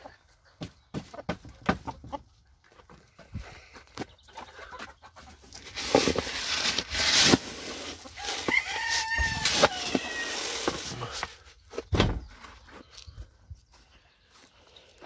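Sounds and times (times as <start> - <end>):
scoop digging through dry grain: 5.6 - 11.2
rooster crowing: 8.2 - 10.6.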